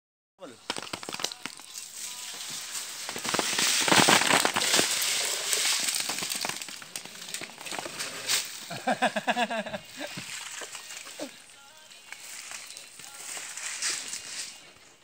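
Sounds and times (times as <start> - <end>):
rustling through palm fronds: 0.4 - 15.0.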